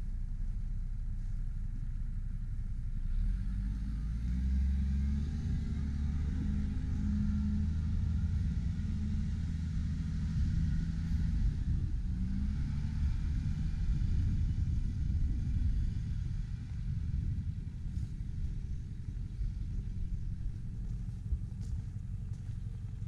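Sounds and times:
diesel truck engine idling: 5.4 - 23.0.

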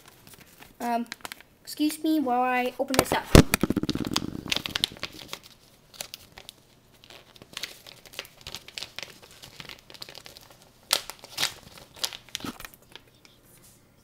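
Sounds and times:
package wrapping crinkling: 3.4 - 12.8.

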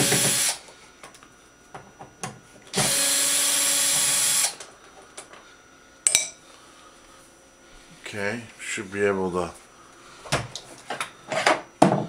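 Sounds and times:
drill motor running: 0.0 - 0.6, 2.7 - 4.6.

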